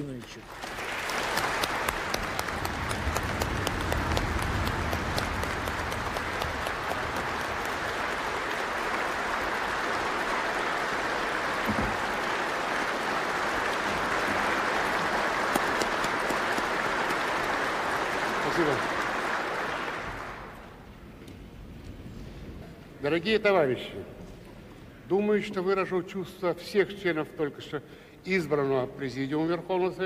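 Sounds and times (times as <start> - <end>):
crowd applauding: 0.0 - 20.9.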